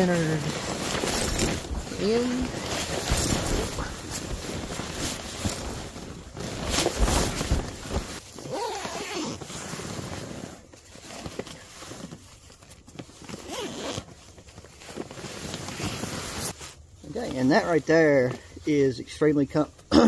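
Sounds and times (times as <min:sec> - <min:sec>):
nylon fabric rustling: 0:00.0 - 0:17.8
zipper being pulled: 0:00.5 - 0:05.8, 0:08.4 - 0:11.2, 0:13.3 - 0:14.1.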